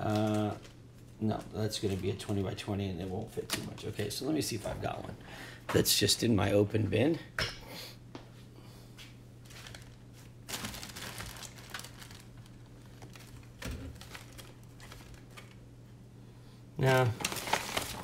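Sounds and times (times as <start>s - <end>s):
crinkling and rustling of parts: 0.0s - 5.2s, 9.4s - 15.7s, 16.8s - 18.0s
steady low hum: 0.0s - 18.0s.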